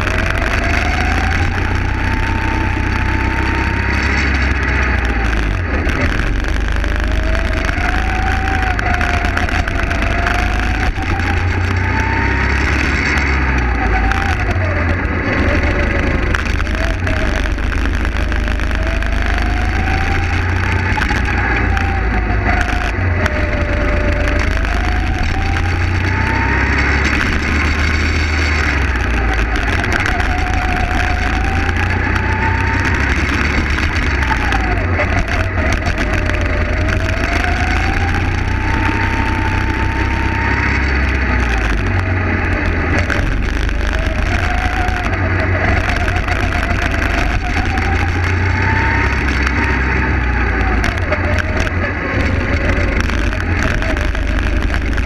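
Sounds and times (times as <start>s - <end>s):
go-kart engine revving: 0.0s - 55.0s
low rumble and rushing noise: 0.0s - 55.0s.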